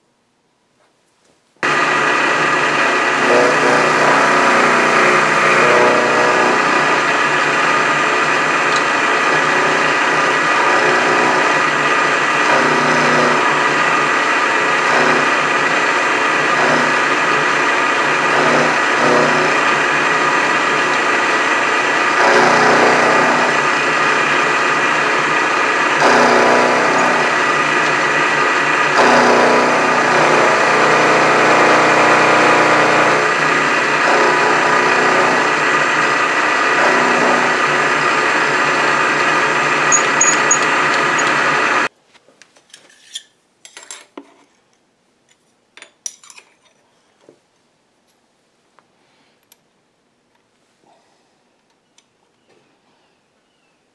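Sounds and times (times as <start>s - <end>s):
milling machine cutting steel: 1.6s - 41.9s.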